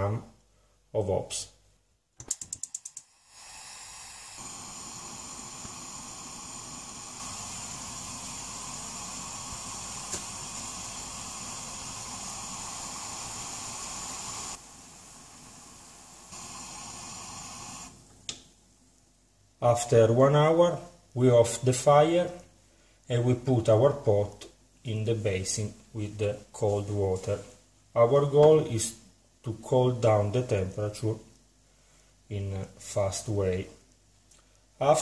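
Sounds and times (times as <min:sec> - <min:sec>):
pot of liquid boiling: 0:02.6 - 0:18.3.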